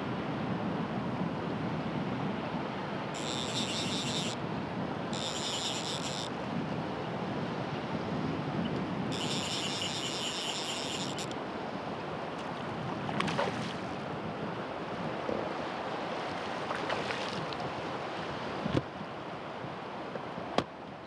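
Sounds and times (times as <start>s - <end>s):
wind on microphone: 0.1s - 19.8s
high even buzz: 3.2s - 4.4s, 5.1s - 6.4s, 9.1s - 11.4s
faint clicks: 9.1s - 11.4s.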